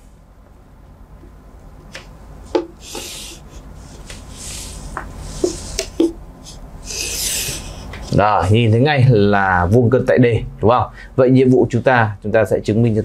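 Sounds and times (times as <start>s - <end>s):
ruler tapping on board: 2.5s - 3.1s
chalk scraping on chalkboard: 2.8s - 8.1s.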